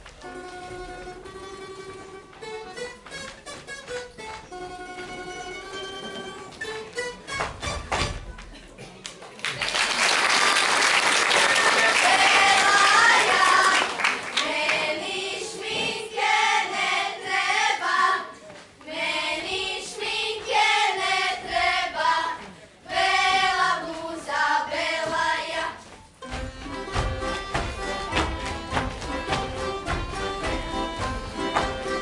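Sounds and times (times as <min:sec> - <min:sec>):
instrumental folk music: 0:00.0 - 0:08.8, 0:14.5 - 0:32.0
applause: 0:09.0 - 0:14.8
girls singing unaccompanied: 0:11.9 - 0:26.0.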